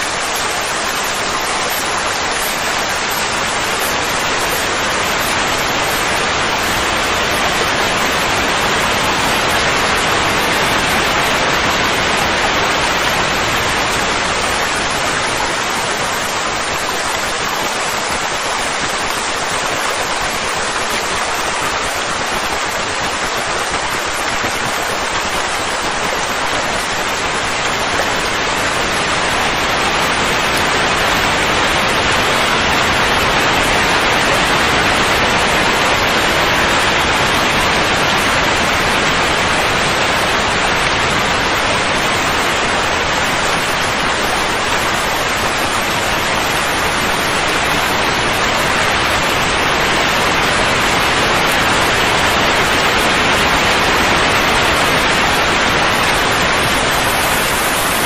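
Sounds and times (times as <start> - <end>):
steady rushing hiss: 0.0 - 58.0.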